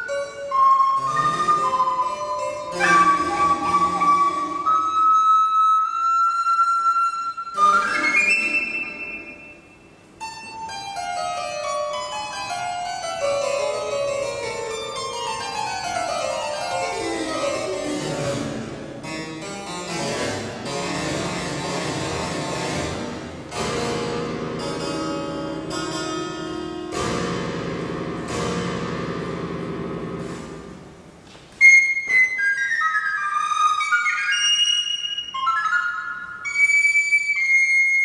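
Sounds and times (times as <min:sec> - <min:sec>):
harpsichord plucked runs: 0:10.1 - 0:31.0.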